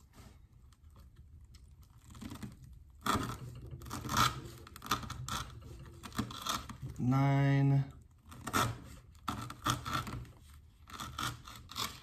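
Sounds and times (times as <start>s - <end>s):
knife sawing through rope: 8.2s - 12.0s.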